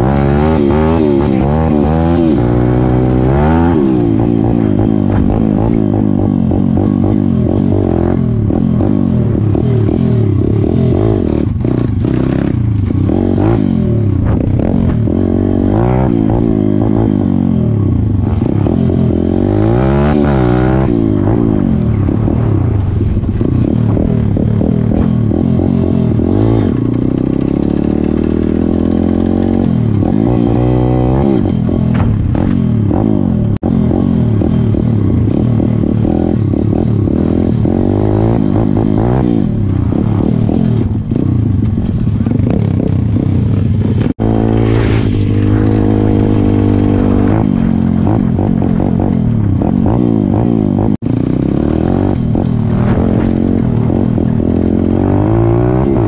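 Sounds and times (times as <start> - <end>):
motorcycle engine revving: 0.0 - 56.0
wind rushing on microphone: 20.4 - 26.2, 39.2 - 50.8.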